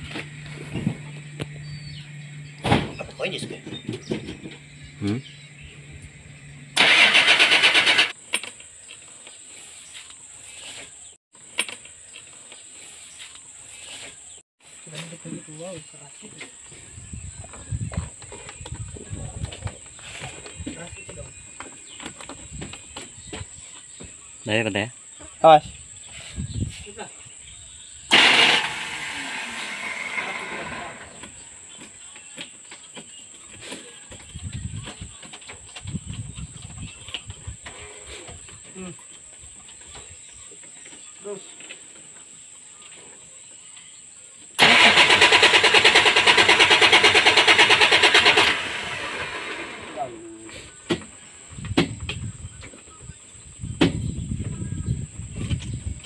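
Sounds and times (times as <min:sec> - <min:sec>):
starter cranking diesel engine: 0:06.6 - 0:08.2, 0:28.0 - 0:31.8, 0:44.6 - 0:50.2
loud hiss: 0:28.1 - 0:31.4, 0:44.6 - 0:50.8.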